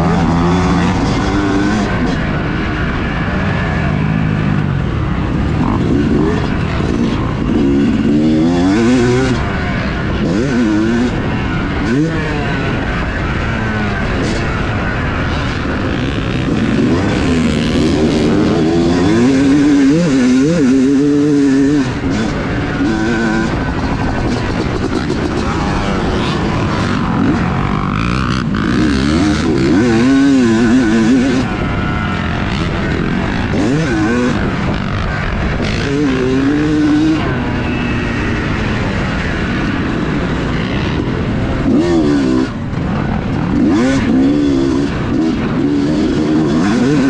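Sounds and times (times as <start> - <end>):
motocross engine revving: 0.0 - 47.0.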